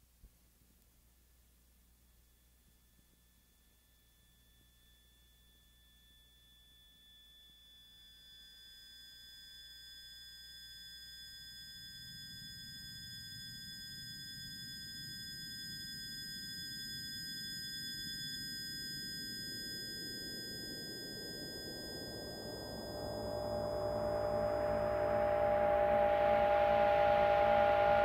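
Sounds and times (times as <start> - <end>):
high sine tones: 2.0 - 28.0
low noise swell: 21.6 - 28.0.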